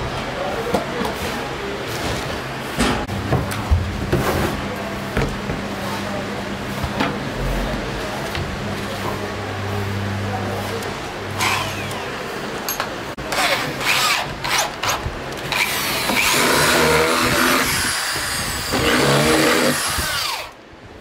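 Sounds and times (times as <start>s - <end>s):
electric drill driving screws: 13.4s - 20.6s.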